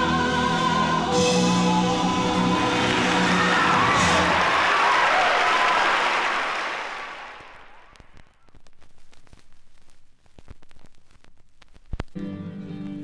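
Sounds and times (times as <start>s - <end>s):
audience applause and cheering: 1.6s - 8.1s
vinyl record surface noise: 6.6s - 13.0s
vinyl clicks: 7.9s - 12.2s.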